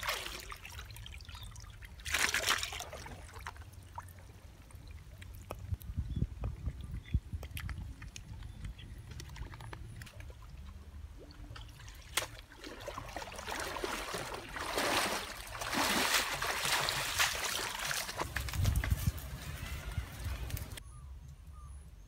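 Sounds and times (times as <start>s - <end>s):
water splashing as people wade: 0.0s - 5.8s, 9.2s - 19.0s.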